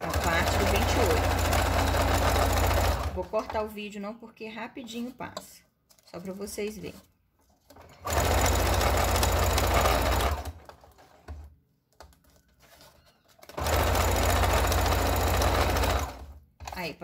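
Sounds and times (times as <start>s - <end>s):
sewing machine stitching: 0.0s - 3.7s, 7.7s - 11.5s, 12.7s - 16.9s.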